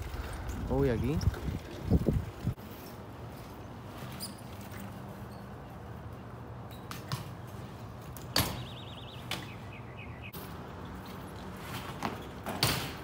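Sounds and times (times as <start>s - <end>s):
bike landing on concrete: 6.7s - 9.6s, 10.4s - 13.0s
bike knocks: 8.2s - 9.5s, 11.7s - 13.0s.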